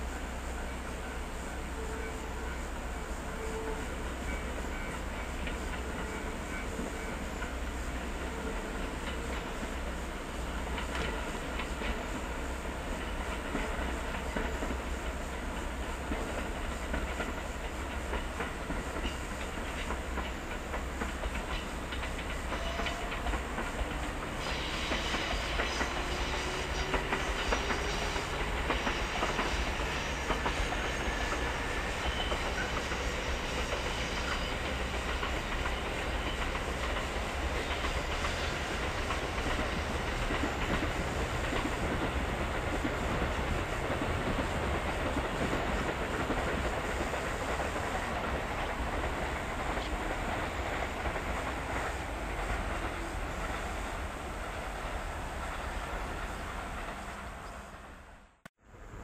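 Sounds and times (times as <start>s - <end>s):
electric train rumbling: 0.0s - 59.0s
train motor whine: 0.0s - 59.0s
wheels clacking over rail joints: 3.5s - 57.7s.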